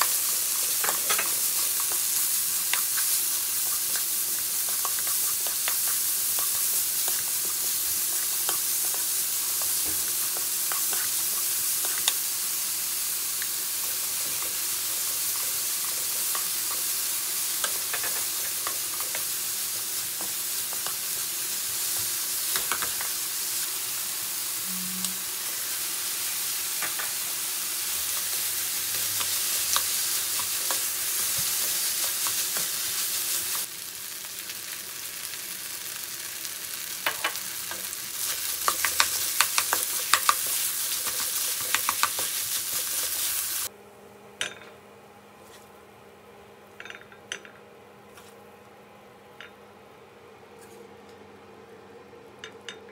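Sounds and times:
vegetables sizzling in oil: 0.0s - 43.7s
spatula tapping pan: 37.0s - 43.3s.

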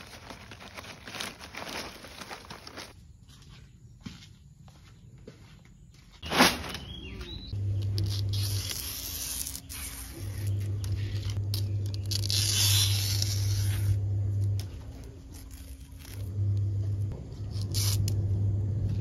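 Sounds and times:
leaves tearing and rasping: 0.0s - 3.0s, 7.8s - 16.4s, 17.4s - 18.2s
low steady hum: 10.2s - 19.0s.

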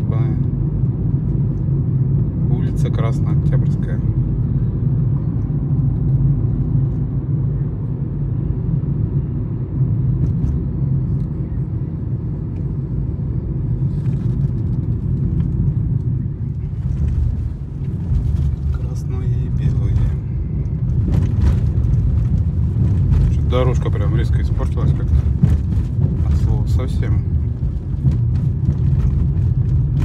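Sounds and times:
car engine and tyre rumble: 0.0s - 30.0s.

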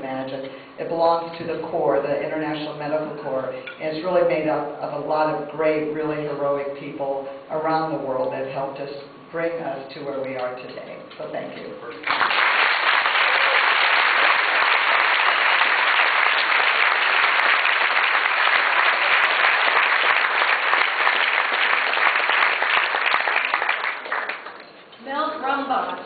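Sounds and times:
audience applauding: 12.0s - 24.8s.

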